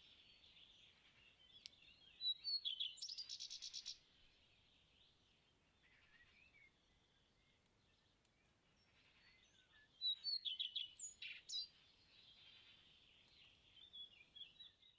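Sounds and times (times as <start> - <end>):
small birds chirping: 0.0 - 14.9.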